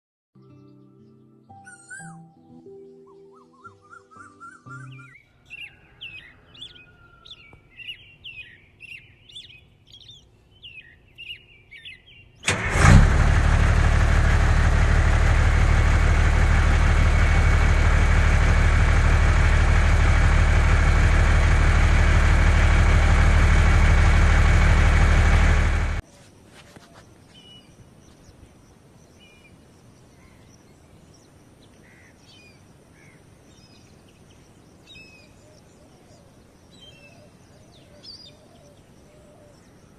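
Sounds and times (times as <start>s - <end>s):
birds chirping: 0.4s - 12.6s, 26.2s - 39.9s
vehicle engine running: 12.5s - 26.0s.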